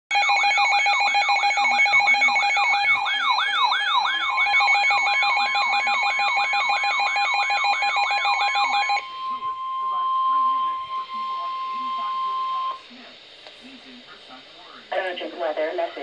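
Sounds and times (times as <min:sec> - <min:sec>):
warbling electronic alarm tone: 0:00.1 - 0:12.8
steady beeping tones: 0:00.1 - 0:13.1.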